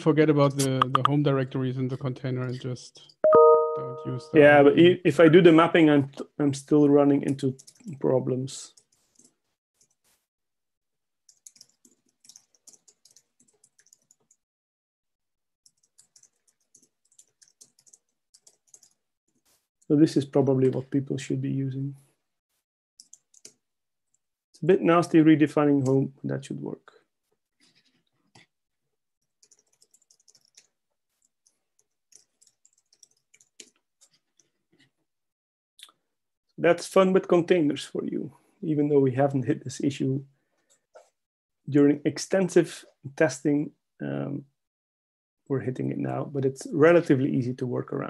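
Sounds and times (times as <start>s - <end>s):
typing on computer keyboard: 7.2s - 8.0s, 11.3s - 14.4s, 15.6s - 19.0s, 23.0s - 23.6s, 29.2s - 34.6s.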